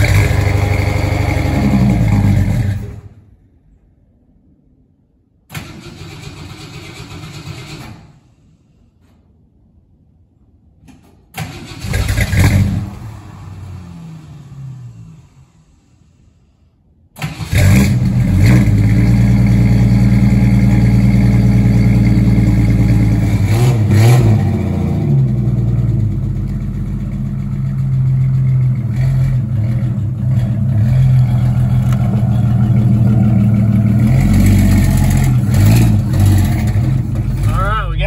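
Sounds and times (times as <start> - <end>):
car engine starting and revving: 0.0 - 3.2, 11.4 - 16.0, 17.2 - 38.0.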